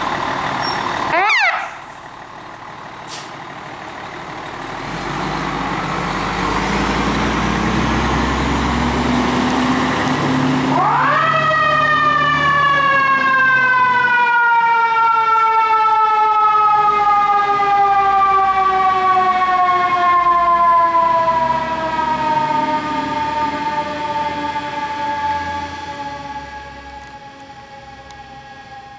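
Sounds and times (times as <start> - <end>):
diesel engine under throttle: 0.0 - 28.9
mechanical siren wailing: 10.7 - 28.9.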